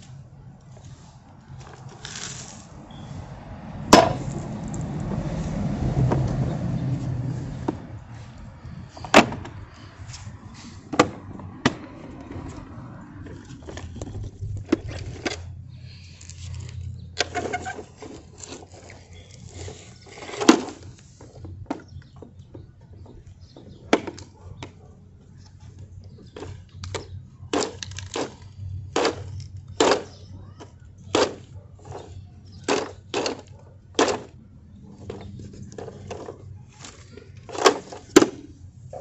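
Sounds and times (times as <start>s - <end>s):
plastic toy trucks clacking: 13.2s - 39.0s.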